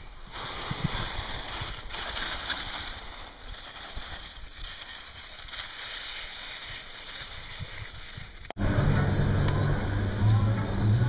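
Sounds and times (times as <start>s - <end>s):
skis scraping over snow: 0.0s - 8.5s
wind rumbling on microphone: 0.0s - 11.0s.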